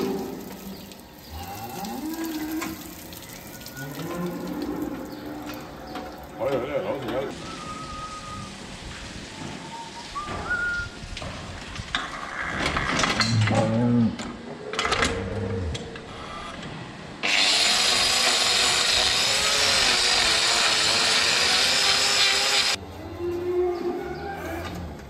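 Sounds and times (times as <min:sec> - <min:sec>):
angle grinder hissing: 0:17.2 - 0:22.8.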